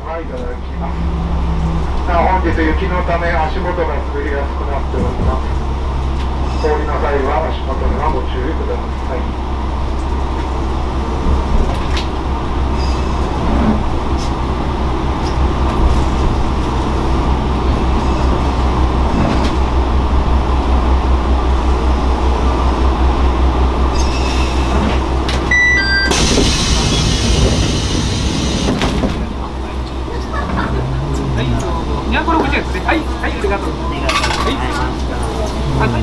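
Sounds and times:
railcar engine hum: 0.0 - 36.0
brief high tones: 25.5 - 26.3.

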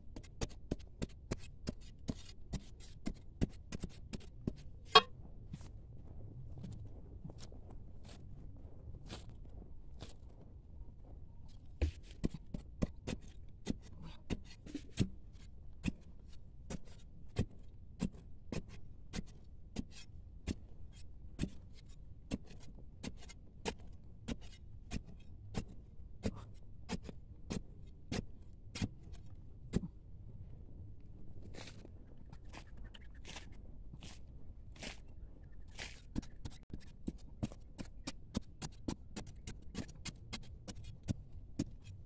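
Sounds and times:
metal spade digging sandy soil: 33.2 - 42.0.

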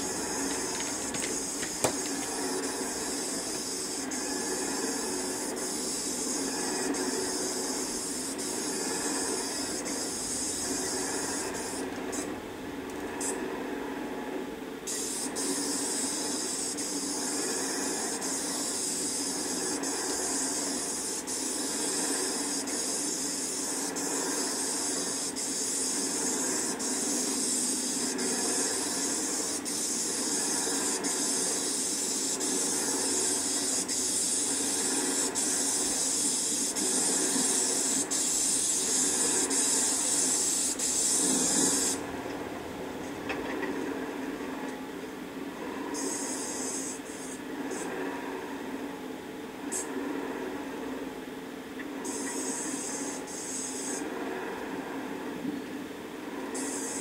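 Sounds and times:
spray gun hissing: 0.0 - 12.3, 14.9 - 42.1, 46.0 - 47.4, 52.0 - 54.0, 56.6 - 57.0
low hum: 0.0 - 27.4.

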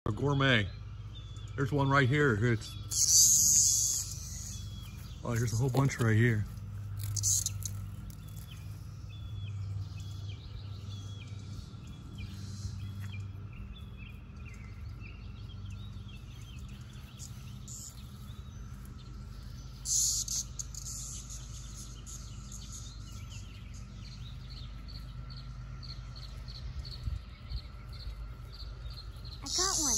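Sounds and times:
bird chirping: 0.1 - 29.9
cicadas droning: 0.1 - 29.9.

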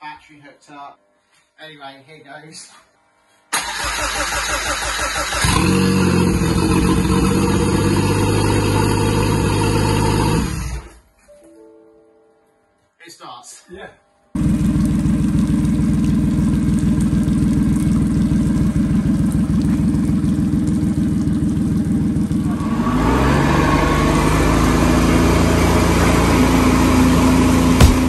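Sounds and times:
outboard motor running: 5.4 - 10.9, 14.4 - 28.0.

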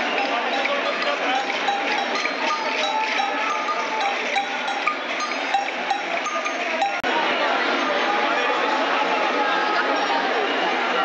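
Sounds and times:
cowbells clanking: 0.0 - 7.1
marching crowd din: 0.0 - 11.0.

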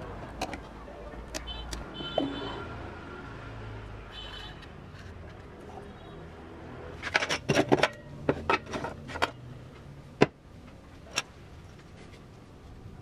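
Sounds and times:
plastic speaker parts clattering: 7.0 - 9.4.

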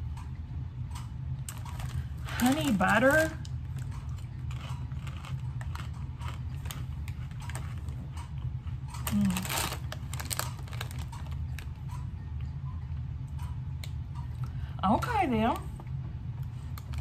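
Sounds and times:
low steady hum: 0.0 - 17.0
chip bag crinkling: 1.5 - 8.2, 9.0 - 11.8.

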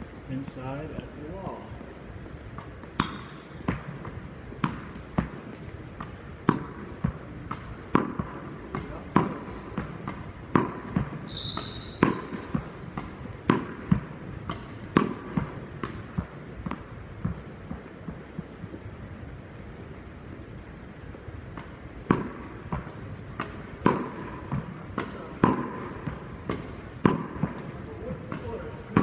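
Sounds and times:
ball bouncing on wooden floor: 1.5 - 18.5, 20.3 - 29.0
sneakers squeaking on wood: 1.6 - 6.1, 7.0 - 7.7, 9.8 - 12.7, 16.2 - 17.5, 22.8 - 26.2, 27.4 - 29.0
racket striking tennis ball: 2.3 - 18.4, 21.4 - 29.0.

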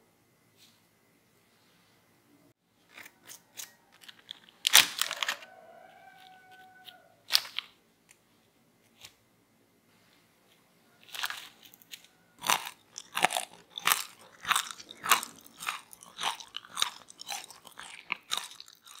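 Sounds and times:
crunchy fries being chewed: 11.0 - 19.0.

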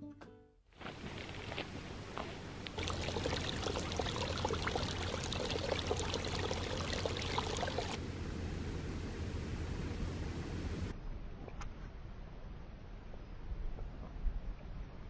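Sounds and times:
creek trickling over rocks: 2.6 - 8.0.

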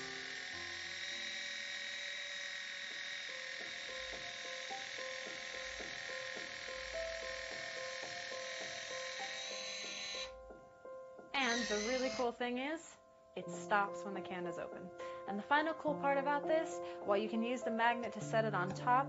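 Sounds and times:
electric can opener whining: 0.0 - 10.5, 11.4 - 12.3.

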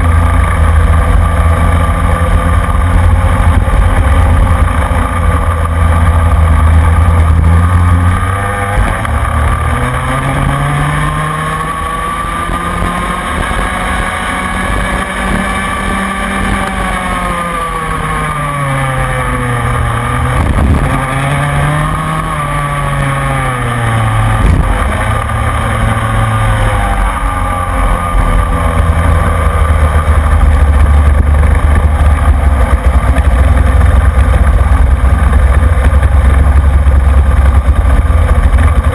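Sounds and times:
kart engine racing: 0.0 - 38.9
loud low rumble: 18.6 - 38.9.

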